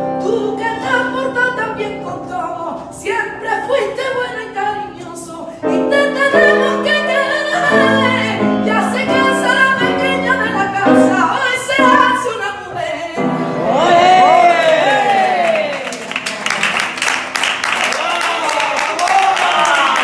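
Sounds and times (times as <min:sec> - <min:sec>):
woman singing: 0:00.0 - 0:14.0
instrumental accompaniment: 0:05.6 - 0:13.7.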